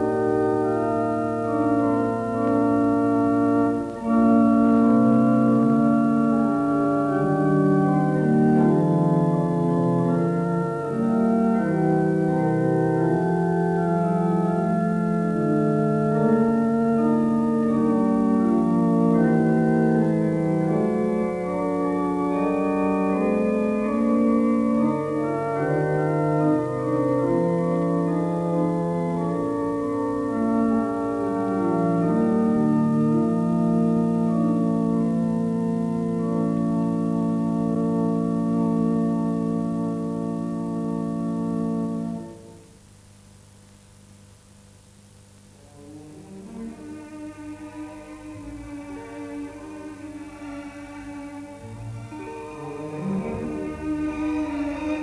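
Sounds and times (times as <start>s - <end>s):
organ chords: 0.0s - 55.0s.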